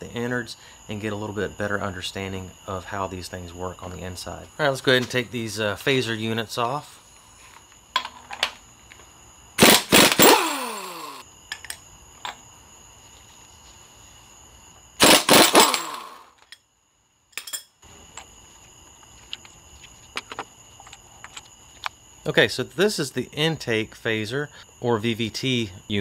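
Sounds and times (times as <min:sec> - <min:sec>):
impact wrench hammering: 0:09.6 - 0:11.2, 0:15.0 - 0:16.2
tool spinning down whine: 0:09.6 - 0:11.3, 0:15.0 - 0:16.3.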